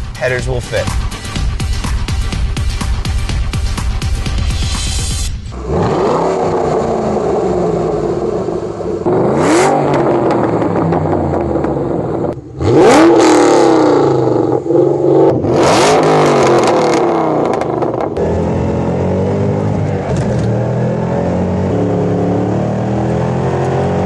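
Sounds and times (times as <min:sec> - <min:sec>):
car engine revving: 0:01.4 - 0:24.0.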